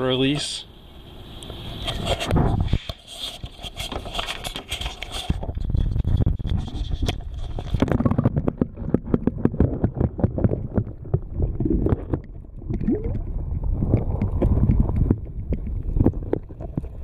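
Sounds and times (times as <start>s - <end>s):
camera handling and scraping: 1.8s - 9.6s
muffled underwater rumble: 5.3s - 17.0s
underwater clicks and knocks: 5.3s - 17.0s.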